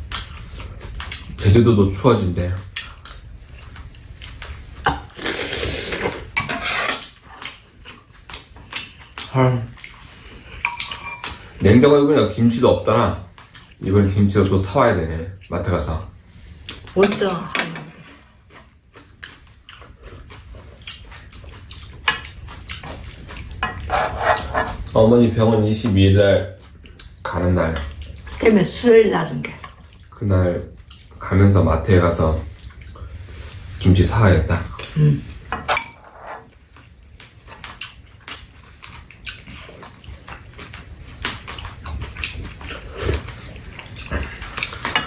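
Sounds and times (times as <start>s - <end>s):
wet chewing: 2.7s - 6.2s, 7.3s - 11.4s, 13.3s - 14.6s, 18.3s - 25.0s, 30.7s - 31.3s, 36.4s - 45.0s
spoons scraping bowls: 6.0s - 7.2s, 10.6s - 11.4s, 23.6s - 24.9s, 35.6s - 36.5s.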